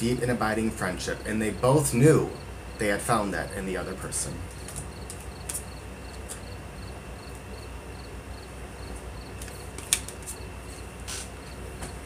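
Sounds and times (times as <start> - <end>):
low steady hum: 0.0 - 12.0
cricket chirping: 4.4 - 12.0.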